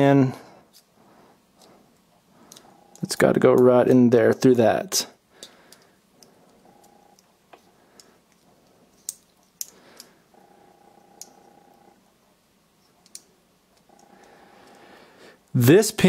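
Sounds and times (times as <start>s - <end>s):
faint steady hum: 0.0s - 16.0s
small metal parts clicking: 7.9s - 10.2s, 13.0s - 14.8s.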